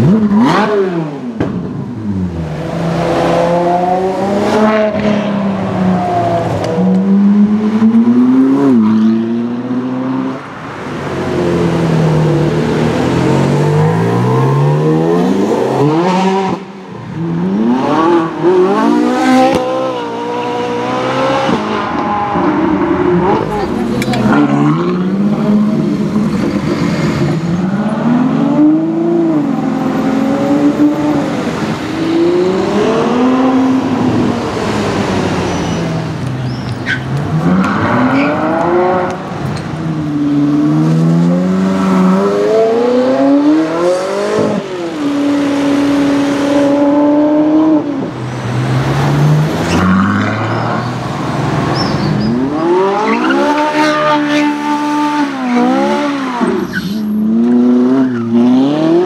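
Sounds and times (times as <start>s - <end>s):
sports car engine revving: 0.0s - 35.8s.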